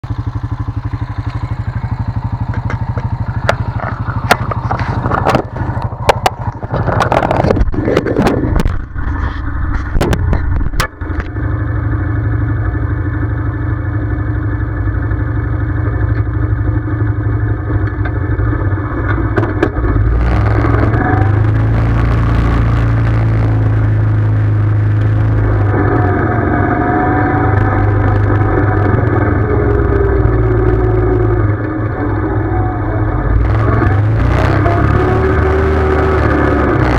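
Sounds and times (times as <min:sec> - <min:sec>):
atv engine idling: 0:00.0 - 0:34.1
sharp clicks and knocks: 0:02.4 - 0:11.4, 0:17.7 - 0:23.9.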